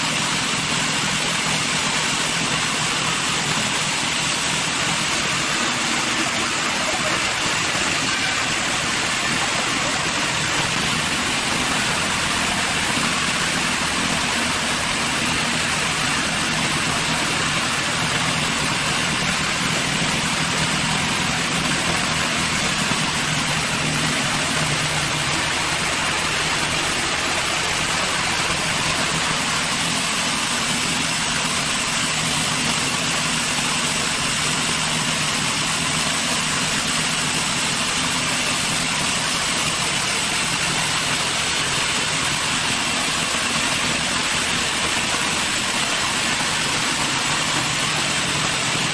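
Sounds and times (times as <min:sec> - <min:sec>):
continuous hiss: 0:00.0 - 0:48.9
sawmill engine running: 0:00.0 - 0:48.9.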